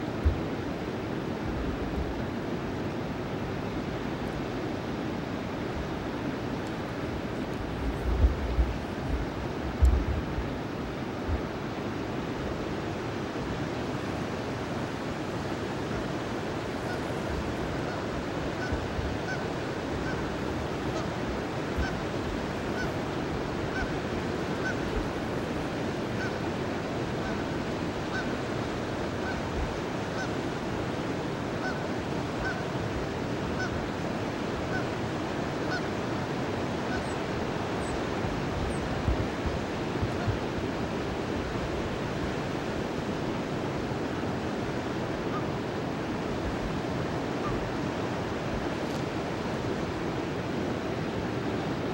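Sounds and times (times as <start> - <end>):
river water rushing: 0.0 - 51.9
geese honking: 16.8 - 17.2, 32.4 - 32.6.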